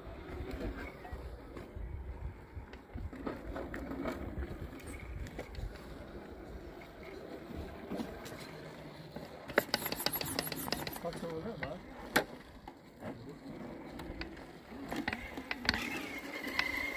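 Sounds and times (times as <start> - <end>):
wind rumble on microphone: 0.0 - 7.9
electric motor and gears whirring: 0.0 - 16.9
tyres scraping on stone: 9.4 - 11.8.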